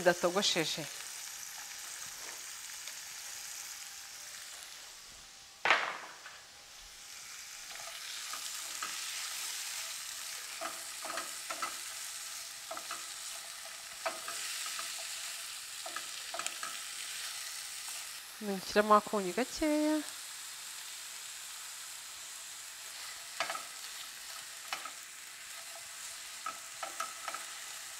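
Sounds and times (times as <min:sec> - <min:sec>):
vegetables sizzling in frying pan: 0:00.0 - 0:27.9
sharp knock: 0:05.7 - 0:06.3
spatula scraping pan: 0:07.7 - 0:18.0, 0:22.9 - 0:27.9.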